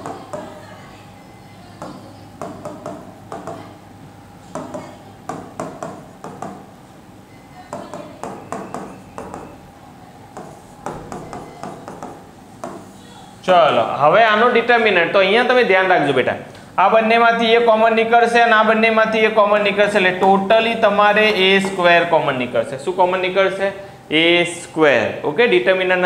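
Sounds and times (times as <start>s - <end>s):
faint steady hum: 0.0s - 26.0s
marker writing on whiteboard: 7.7s - 9.6s, 10.3s - 13.0s.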